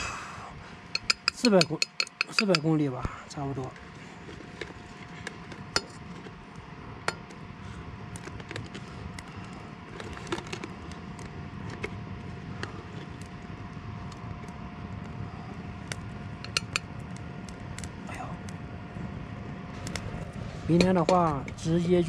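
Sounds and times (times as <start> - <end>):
oil frying with pops: 15.8 - 17.9.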